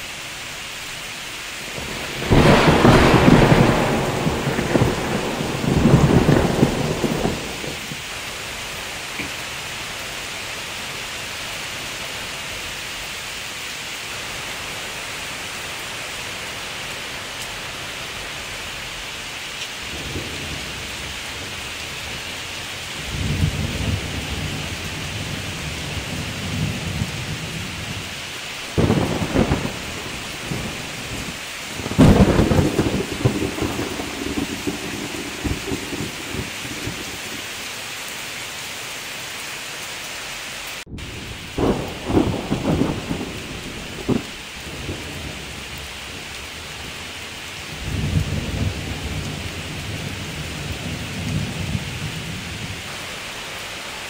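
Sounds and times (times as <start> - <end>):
steady rain falling: 0.0 - 54.0
thunder rumbling and clapping: 1.8 - 8.1, 28.7 - 37.4, 40.8 - 46.9.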